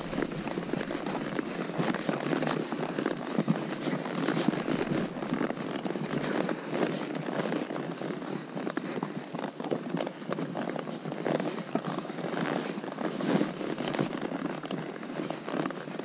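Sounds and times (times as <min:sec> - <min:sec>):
shod hooves clicking on stone: 0:00.0 - 0:10.8
horse hooves clopping on gravel: 0:00.0 - 0:16.0.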